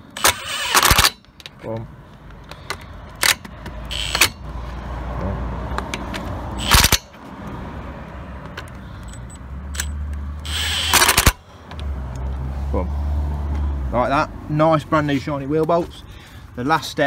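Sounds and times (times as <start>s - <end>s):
impact wrench hammering: 9.8s - 11.4s.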